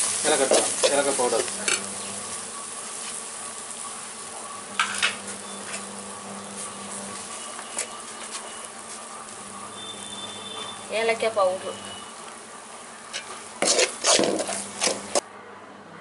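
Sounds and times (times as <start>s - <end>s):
syrup simmering with low hiss: 0.0s - 15.2s
low buzz: 1.4s - 13.1s.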